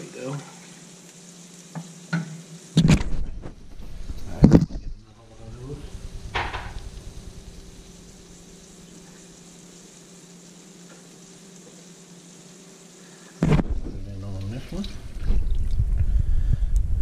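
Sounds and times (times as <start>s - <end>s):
sauce sizzling in a skillet: 0.0s - 13.4s
faint hum: 0.0s - 17.0s.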